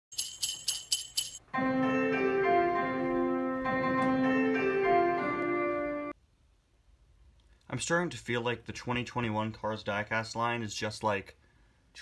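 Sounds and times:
jingle bells shaking: 0.1 - 1.4
keyboard melody: 1.4 - 6.2.

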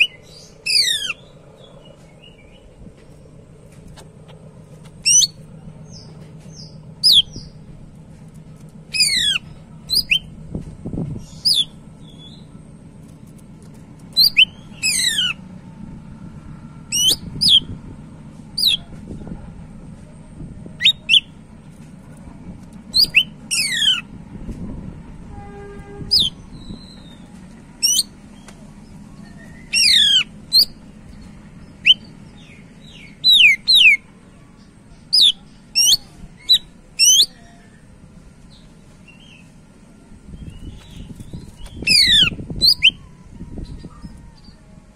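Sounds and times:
bird singing whistled phrases: 5.0 - 5.4, 7.0 - 7.5, 8.9 - 10.3, 14.2 - 15.4, 16.9 - 17.7, 20.8 - 21.3, 22.9 - 24.0, 29.2 - 30.8, 31.8 - 34.0, 41.7 - 43.1.

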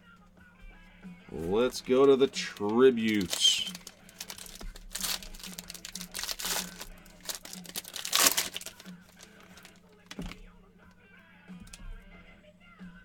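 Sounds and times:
wrapper crinkling and tearing: 1.4 - 10.4.

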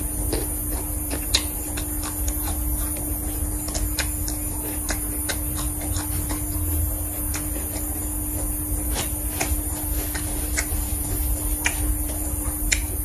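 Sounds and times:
chewing and crunching: 0.0 - 13.0
steady hum: 0.0 - 13.0
crisp mouth clicks: 1.1 - 6.5, 11.5 - 13.0.

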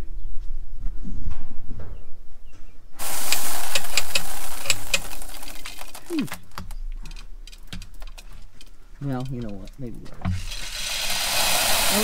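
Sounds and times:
seed pouring into metal bucket: 3.0 - 6.5, 10.4 - 12.0.

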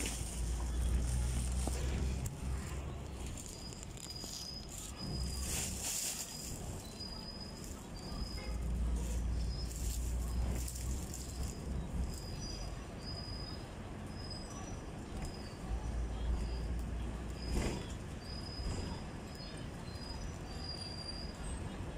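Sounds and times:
tram rumbling on rails: 0.0 - 21.9
high squeaks: 3.2 - 10.7.

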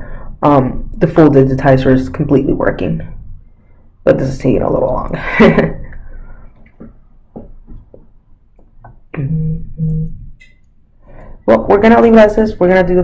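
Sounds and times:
person speaking: 8.8 - 13.0
person humming: 9.1 - 10.4.

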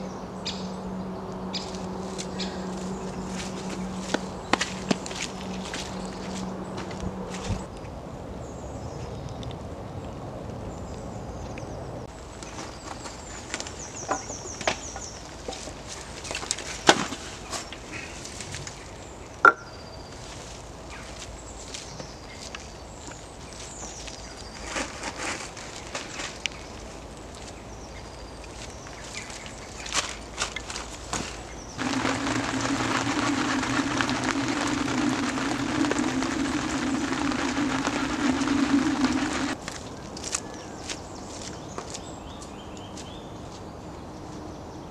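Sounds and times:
small birds calling: 0.0 - 5.0, 26.4 - 43.4
wooden knocks of logs: 13.5 - 17.6
steady rushing background: 31.8 - 39.6
rain pattering: 31.8 - 39.7.

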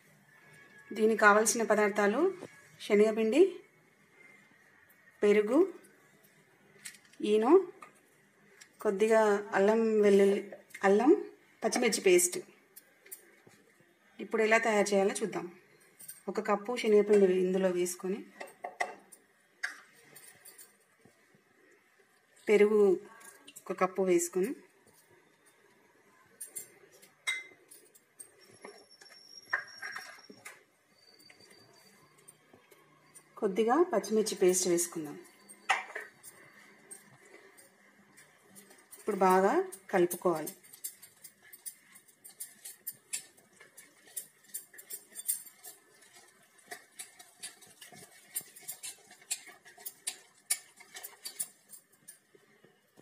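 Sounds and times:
utensils clicking on metal bowl: 26.3 - 30.6, 34.0 - 53.0.

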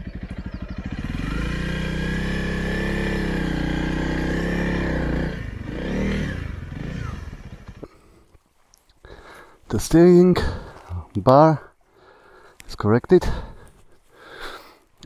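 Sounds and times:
motorcycle engine running: 0.0 - 8.1.

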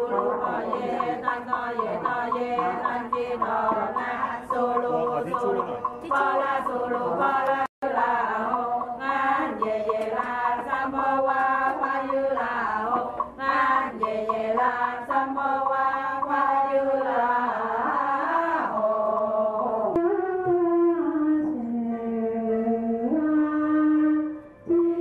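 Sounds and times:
voices chanting together: 0.0 - 20.0.

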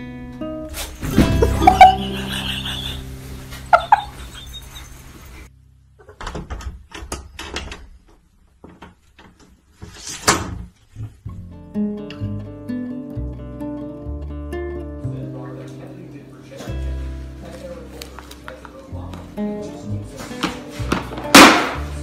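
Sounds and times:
animal cries: 1.4 - 3.0, 3.7 - 5.2.

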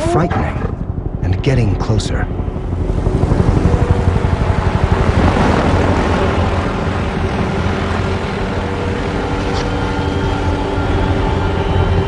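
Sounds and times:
helicopter engine whine: 0.0 - 12.0
helicopter rotor blades beating: 0.0 - 12.0.

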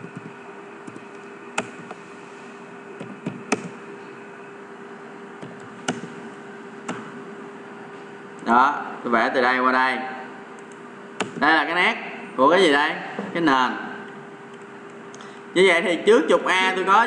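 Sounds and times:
keyboard and mouse clicks: 0.0 - 2.0, 3.0 - 3.8, 5.4 - 6.1
steady low hum: 0.0 - 17.0.

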